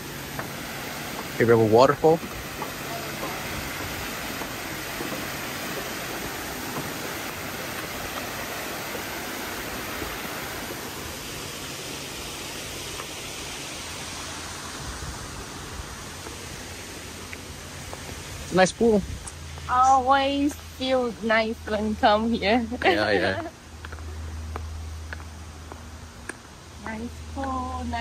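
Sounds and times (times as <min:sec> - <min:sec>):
waterfall splashing into pool: 0:00.0 - 0:19.0.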